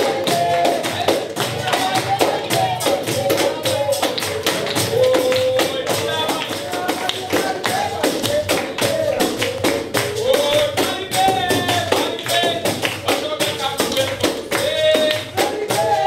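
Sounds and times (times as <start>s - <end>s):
percussion beat: 0.0s - 16.0s.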